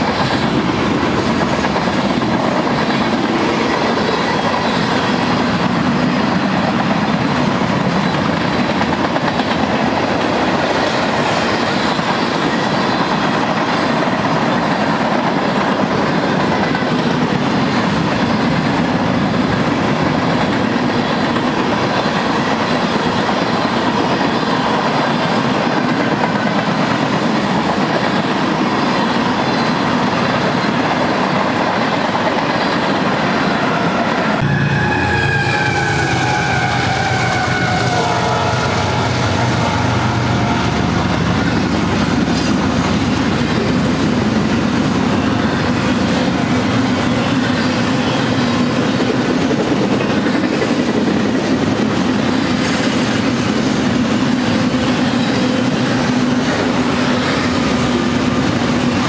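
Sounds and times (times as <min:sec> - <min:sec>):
train wheels clacking over rails: 0:00.0 - 0:59.0
locomotive horn chord: 0:34.4 - 0:41.0.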